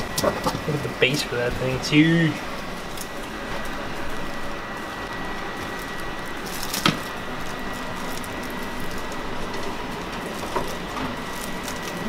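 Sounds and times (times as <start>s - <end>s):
steady background hiss: 0.0s - 12.0s
rice rustling from plastic bag: 1.8s - 12.0s
food pressed by hand squishing: 2.4s - 12.0s.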